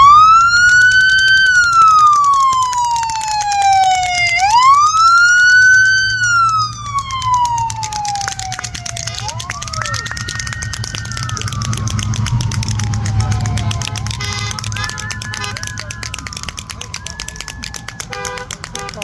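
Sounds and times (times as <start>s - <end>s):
police car siren wailing: 0.0s - 19.0s.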